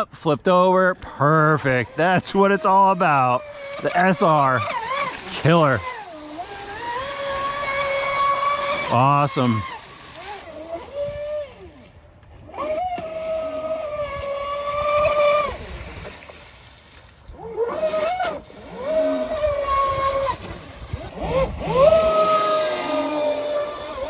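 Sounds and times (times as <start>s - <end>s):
electric motor whining: 1.8s - 15.9s, 17.3s - 24.0s
water spray rushing: 3.7s - 11.8s, 17.8s - 24.0s.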